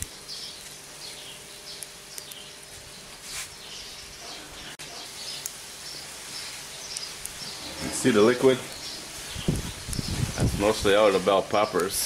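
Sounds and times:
burning twigs crackling: 0:00.0 - 0:12.0
small birds chirping: 0:00.0 - 0:12.0
food sizzling in a skillet: 0:05.1 - 0:10.6.

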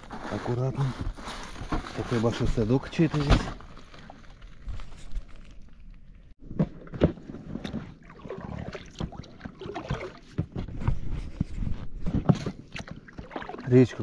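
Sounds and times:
water splashing: 0:07.5 - 0:10.7, 0:12.5 - 0:14.0.

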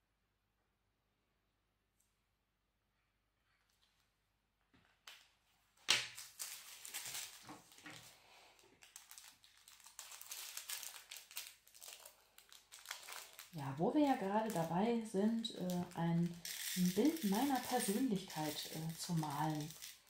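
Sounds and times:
plastic bag crinkling: 0:06.1 - 0:20.0
tiny beads clicking into cup: 0:15.4 - 0:20.0.

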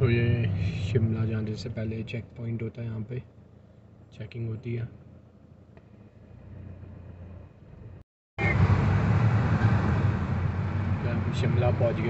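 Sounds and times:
low vehicle hum: 0:00.0 - 0:12.0
road and engine noise: 0:00.0 - 0:12.0.

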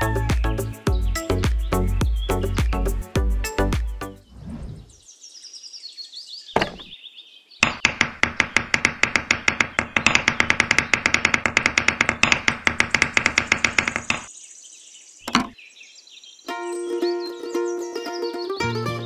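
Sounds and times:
rapid even knocking: 0:07.6 - 0:14.3.

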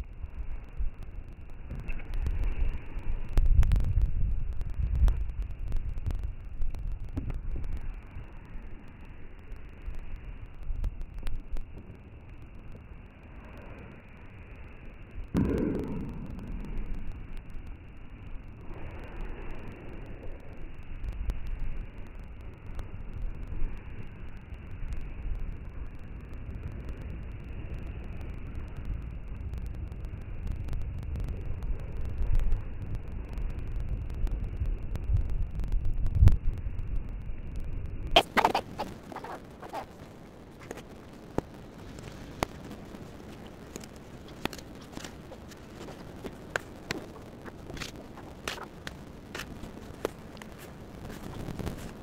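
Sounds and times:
wind buffeting microphone: 0:00.0 - 0:08.1
faint clicks: 0:00.0 - 0:52.0
sharp clicks: 0:43.3 - 0:50.6.

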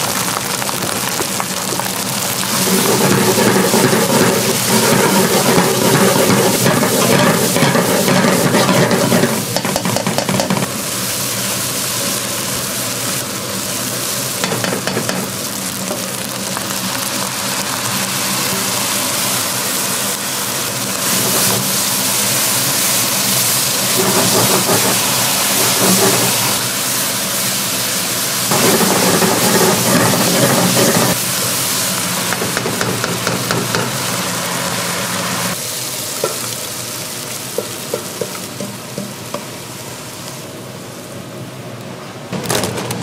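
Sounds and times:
food sizzling and crackling: 0:00.0 - 0:43.0
steady hum: 0:18.3 - 0:34.6.

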